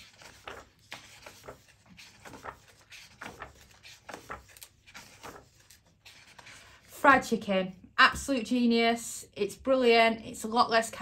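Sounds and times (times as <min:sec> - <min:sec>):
paper pages turning: 0:00.0 - 0:06.9.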